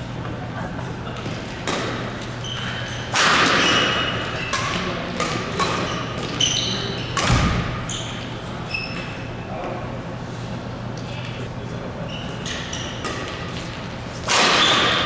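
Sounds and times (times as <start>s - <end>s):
rackets hitting shuttlecock: 1.2s - 7.8s, 12.5s - 15.0s
sneakers squeaking on court: 1.6s - 9.5s, 12.0s - 13.8s.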